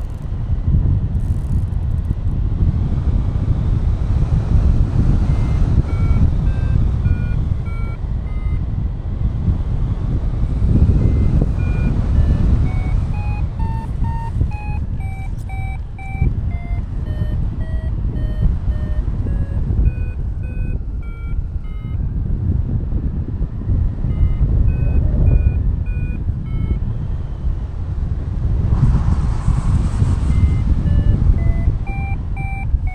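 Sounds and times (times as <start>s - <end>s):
variometer beeping: 0.0s - 0.4s, 1.1s - 2.4s, 4.3s - 9.1s, 10.1s - 22.4s, 23.6s - 27.5s, 30.0s - 32.9s
wind noise on microphone: 0.0s - 32.9s.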